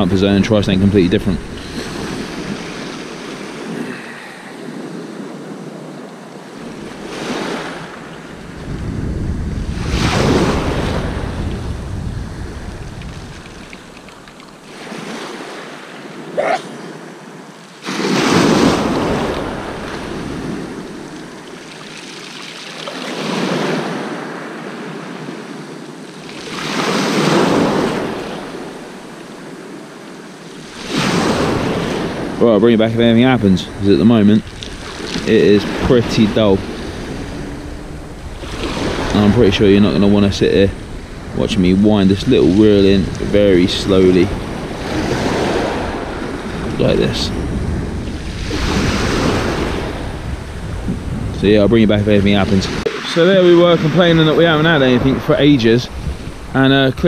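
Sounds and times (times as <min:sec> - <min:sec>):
wind rumbling on microphone: 0:00.0 - 0:16.4, 0:17.8 - 0:21.9, 0:23.0 - 0:57.0
sea waves washing in: 0:00.0 - 0:57.0.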